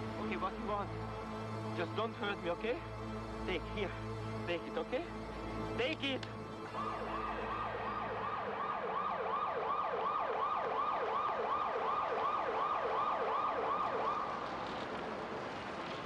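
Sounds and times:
police siren yelping: 0:06.7 - 0:14.3.

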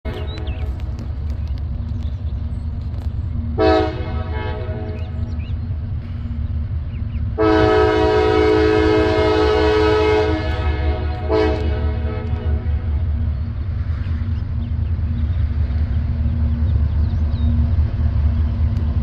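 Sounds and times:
locomotive air horn chord: 0:03.6 - 0:05.1, 0:07.4 - 0:13.0.

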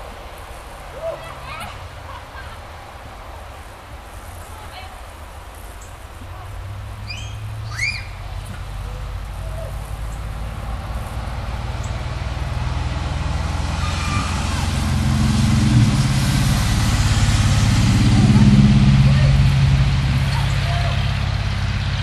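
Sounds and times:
road noise: 0:00.0 - 0:22.0
vehicle engine humming: 0:00.0 - 0:22.0
short high squeals: 0:07.1 - 0:08.2, 0:13.7 - 0:14.8.

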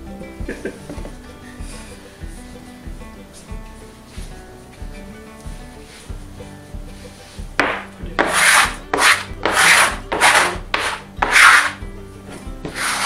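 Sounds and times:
scraping strokes on countertop: 0:07.0 - 0:11.8, 0:12.6 - 0:13.0.

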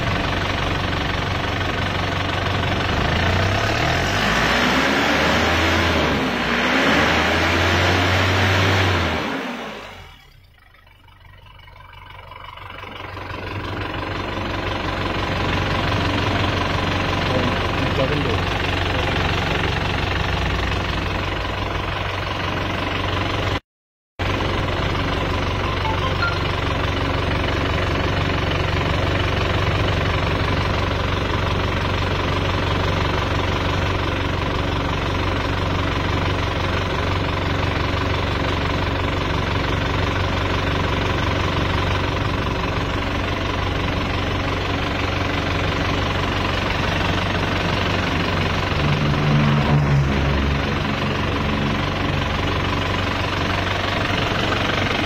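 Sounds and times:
diesel car engine idling: 0:00.0 - 0:06.4, 0:09.0 - 0:23.6, 0:24.2 - 0:55.0.

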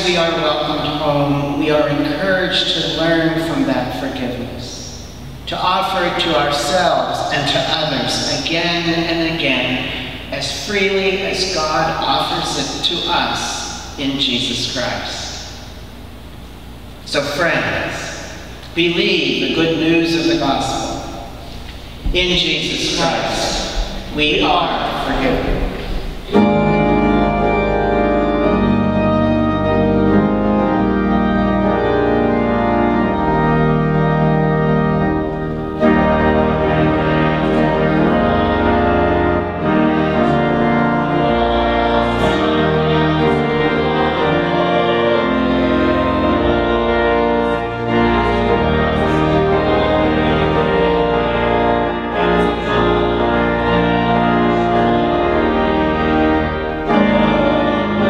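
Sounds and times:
church organ chords: 0:00.0 - 0:58.0.

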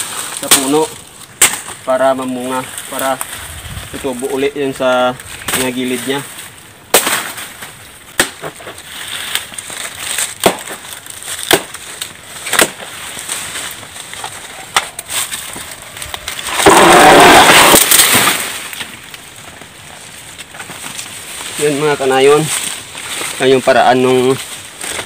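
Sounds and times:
machete chopping plant trunk: 0:00.4 - 0:01.8, 0:06.9 - 0:13.0, 0:16.4 - 0:18.9
loud rustling crash: 0:05.3 - 0:19.0.

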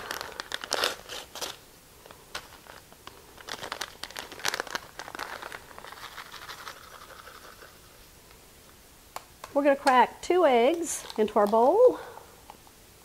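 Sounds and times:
paper packet crinkling: 0:00.0 - 0:08.0, 0:10.9 - 0:11.6.

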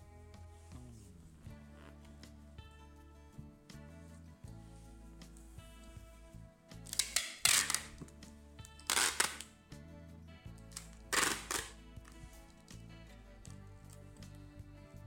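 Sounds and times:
background music: 0:00.0 - 0:15.0
packing tape pulled off dispenser: 0:06.8 - 0:09.6, 0:10.6 - 0:12.8.

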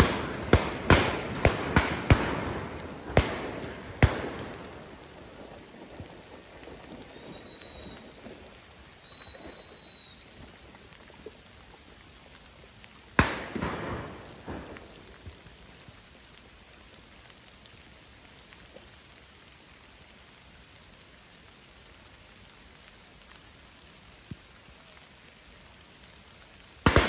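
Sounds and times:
shotgun shot: 0:00.0 - 0:04.7, 0:13.2 - 0:14.7
rain pattering: 0:00.0 - 0:27.0.

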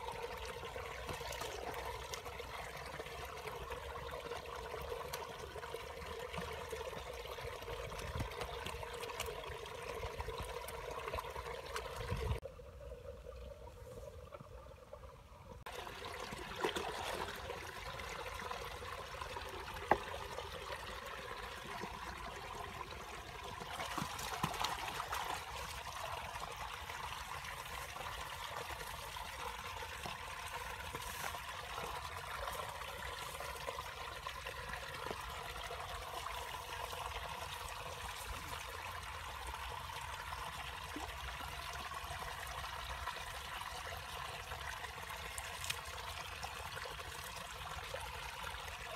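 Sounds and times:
water trickling: 0:00.0 - 0:48.9.

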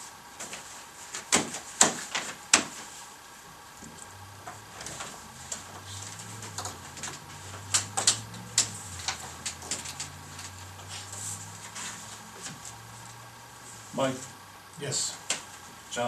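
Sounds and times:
low steady hum: 0:02.4 - 0:16.0
papers and objects tapping on table: 0:03.8 - 0:10.6.

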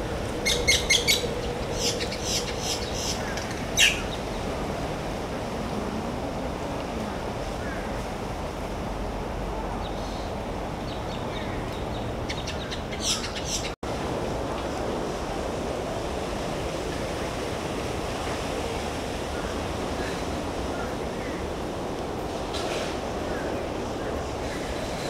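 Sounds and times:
outdoor rushing noise: 0:13.8 - 0:25.0.

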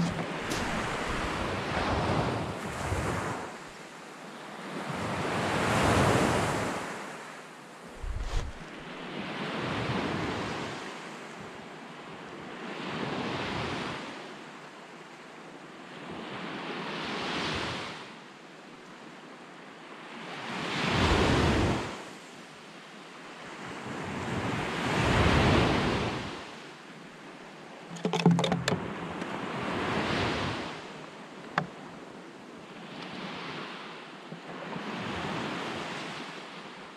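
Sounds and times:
wind on microphone: 0:07.9 - 0:08.8.

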